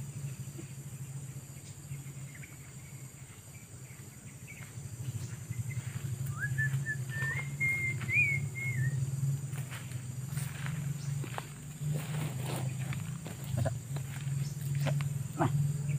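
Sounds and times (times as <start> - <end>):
steady low hum: 0.0 - 15.9
person whistling: 6.3 - 9.0
footsteps crunching dry leaves: 9.4 - 15.2.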